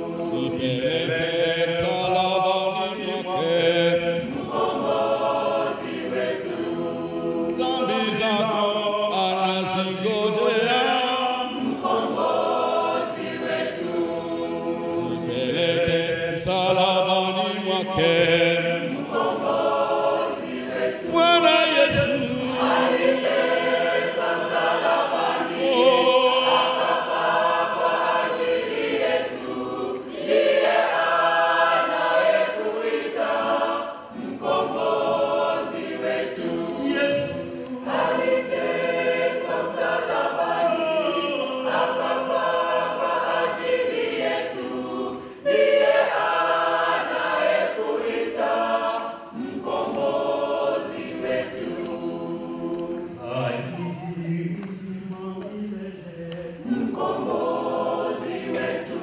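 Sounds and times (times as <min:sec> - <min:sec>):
church choir singing: 0:00.0 - 0:59.0
man singing into a microphone: 0:07.6 - 0:11.5, 0:21.0 - 0:23.0, 0:53.3 - 0:56.6.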